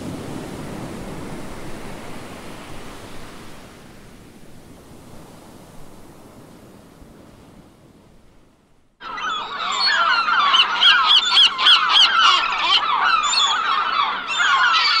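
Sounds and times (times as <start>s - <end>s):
ocean surf: 0.0s - 15.0s
seagulls calling: 9.0s - 15.0s.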